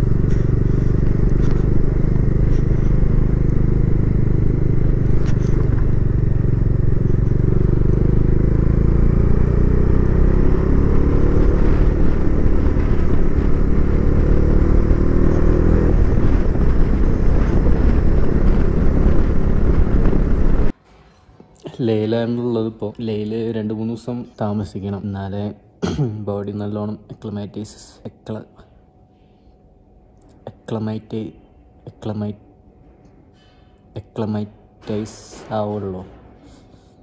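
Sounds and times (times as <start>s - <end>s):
motorcycle engine running: 0.0s - 20.7s.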